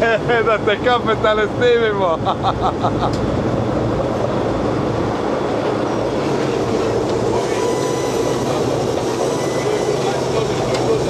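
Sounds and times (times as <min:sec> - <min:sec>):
ship engines rumbling: 0:00.0 - 0:11.0
high squeals and whines: 0:06.0 - 0:11.0.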